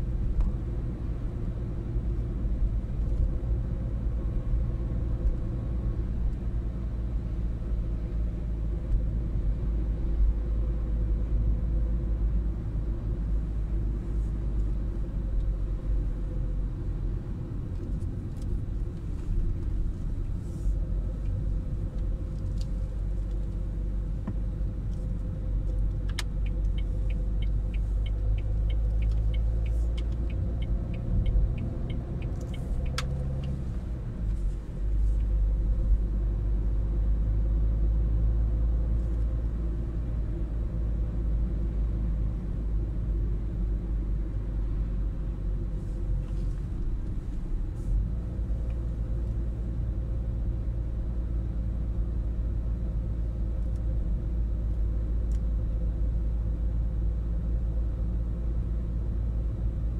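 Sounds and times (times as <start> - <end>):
car road and engine rumble: 0.0 - 59.9
turn indicator ticking: 25.7 - 33.7.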